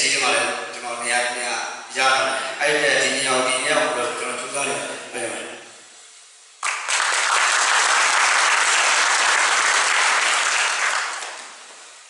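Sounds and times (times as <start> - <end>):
audience applauding: 6.6 - 11.8.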